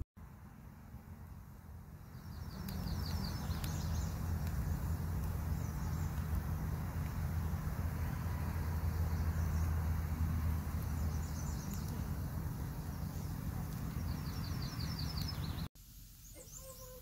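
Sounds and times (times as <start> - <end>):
log fire rumbling: 0.2 - 16.2
small bird chirping: 2.0 - 6.4, 10.7 - 17.0.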